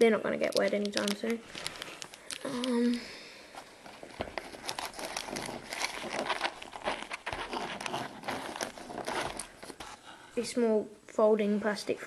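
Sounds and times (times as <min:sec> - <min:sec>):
plastic wrap crinkling: 0:00.4 - 0:10.1
small clicks and taps: 0:00.5 - 0:03.0
fabric pouch rustling: 0:03.5 - 0:10.0.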